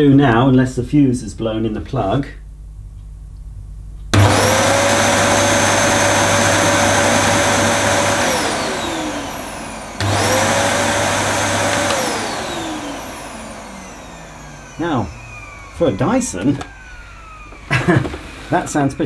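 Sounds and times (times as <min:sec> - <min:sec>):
vacuum motor whining: 0:04.2 - 0:19.0.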